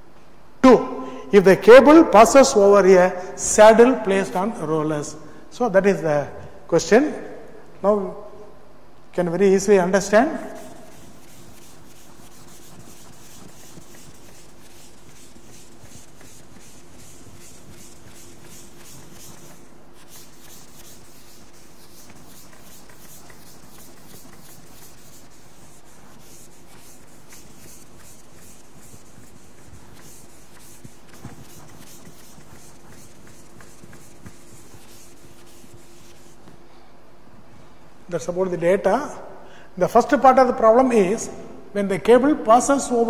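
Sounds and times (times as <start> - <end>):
duster rubbing a chalkboard: 10.0 - 36.6.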